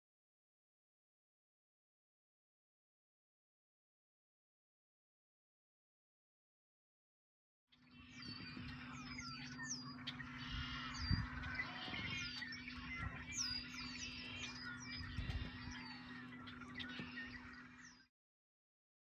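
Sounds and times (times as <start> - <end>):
marsh birds calling: 7.8 - 18.1
steady low hum: 8.0 - 18.1.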